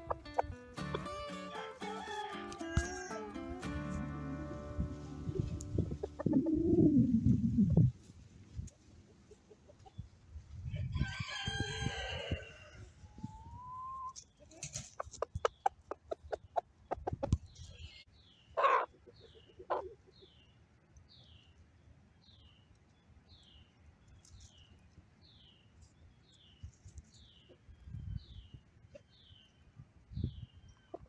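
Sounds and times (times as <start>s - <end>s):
rooster clucking loudly: 5.3s - 7.2s, 18.6s - 18.9s.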